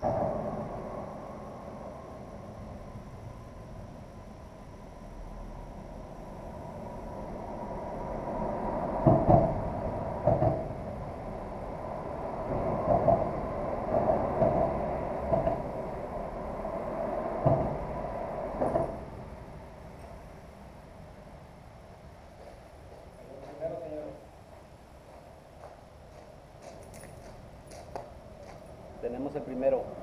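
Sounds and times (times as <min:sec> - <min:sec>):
traffic rumble overhead: 0:00.0 - 0:30.0
heavy thuds of wheels on deck: 0:08.6 - 0:19.3.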